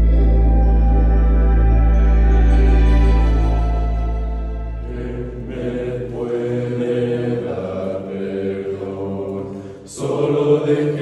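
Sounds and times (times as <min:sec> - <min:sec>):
ambient music: 0:00.0 - 0:11.0
male choir singing a cappella: 0:04.8 - 0:11.0.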